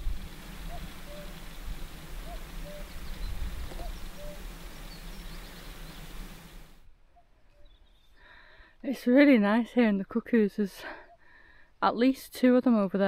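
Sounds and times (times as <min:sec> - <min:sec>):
small birds chirping: 0:00.4 - 0:08.6
cuckoo calling: 0:00.6 - 0:08.1.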